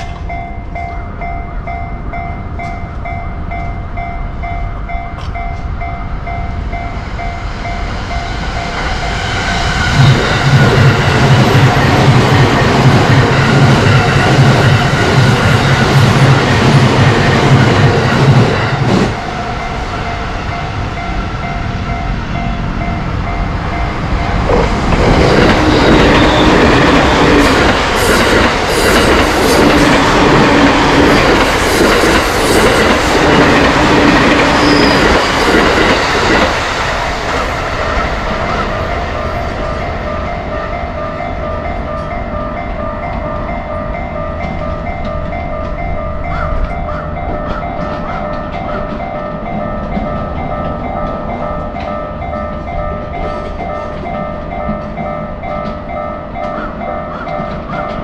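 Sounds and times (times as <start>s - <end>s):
rail noise: 0.0s - 58.0s
train passing: 0.0s - 58.0s
crossing signal warning tones: 0.1s - 58.0s.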